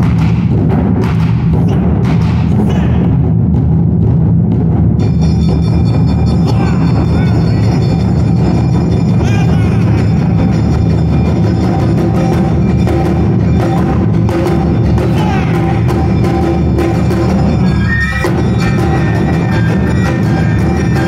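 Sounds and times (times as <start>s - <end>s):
driving percussion rhythm: 0.0s - 21.0s
shamisen melody: 5.1s - 21.0s.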